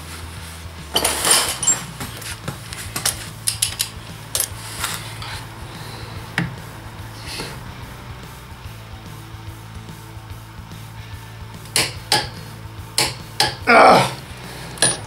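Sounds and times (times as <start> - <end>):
metal tools clinking: 0.9 - 5.4, 14.7 - 15.0
metal tool scraping: 0.9 - 5.5.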